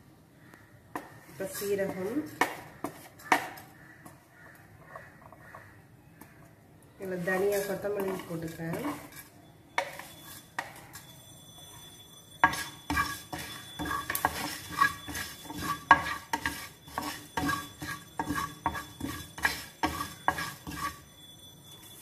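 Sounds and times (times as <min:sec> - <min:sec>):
spatula scraping frying pan: 0:01.3 - 0:03.7, 0:07.1 - 0:11.1, 0:12.4 - 0:21.2.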